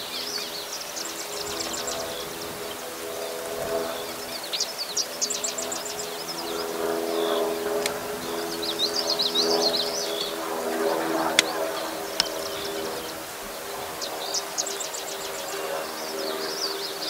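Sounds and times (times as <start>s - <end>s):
songbird chirping: 0.0s - 17.0s
steady low hum: 0.0s - 17.0s
sharp clicks: 7.8s - 8.0s.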